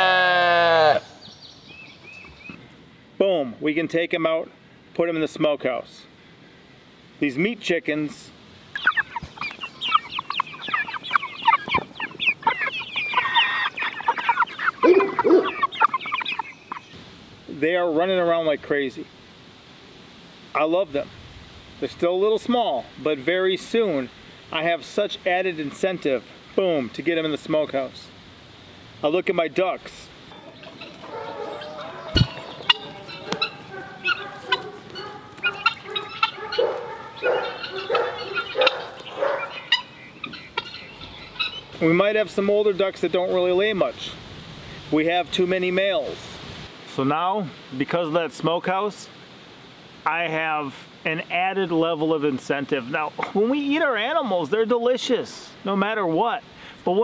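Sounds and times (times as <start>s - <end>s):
chickens clucking: 8.7s - 17.0s, 24.6s - 27.9s, 29.8s - 44.0s
ducks calling: 8.7s - 17.0s, 29.8s - 43.9s.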